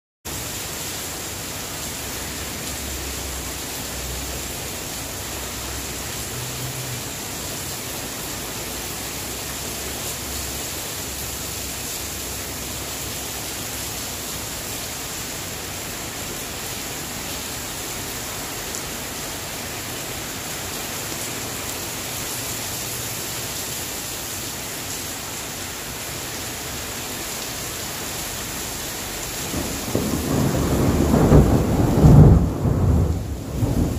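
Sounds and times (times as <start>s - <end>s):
heavy rain: 0.3s - 33.9s.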